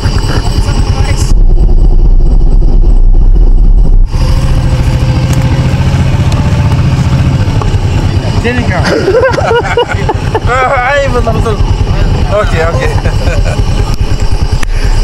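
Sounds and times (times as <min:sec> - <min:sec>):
motorcycle engine idling: 0:00.0 - 0:15.0
steady low hum: 0:00.0 - 0:15.0.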